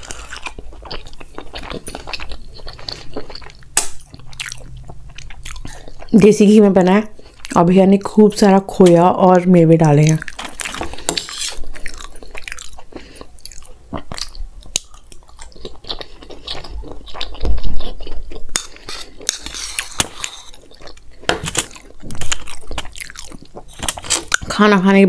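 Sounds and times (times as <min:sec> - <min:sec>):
close chewing: 0:00.0 - 0:06.3, 0:09.9 - 0:24.6
spoon scraping a steel bowl: 0:11.0 - 0:11.6, 0:18.6 - 0:20.5.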